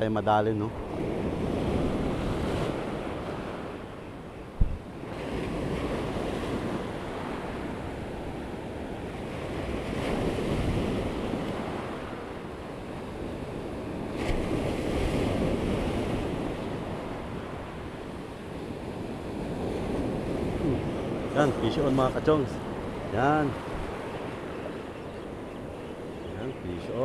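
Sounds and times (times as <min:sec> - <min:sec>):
ocean surf washing: 0:00.0 - 0:27.0
wind buffeting microphone: 0:00.6 - 0:27.0.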